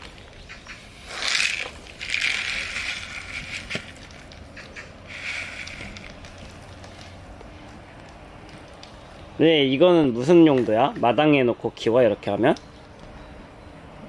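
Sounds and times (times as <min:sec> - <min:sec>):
potting soil pouring: 0:00.9 - 0:04.5, 0:05.1 - 0:07.4.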